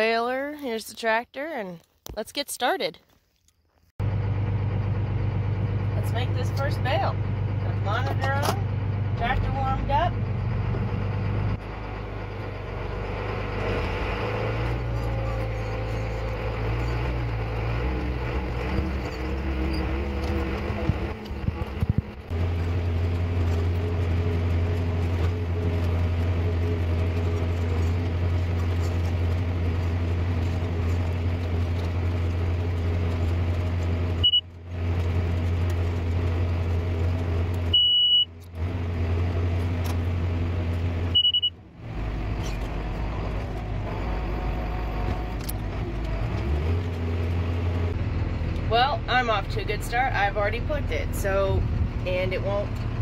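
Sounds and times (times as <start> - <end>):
tractor engine running under load: 4.0 - 53.0
short high beep: 41.2 - 41.5.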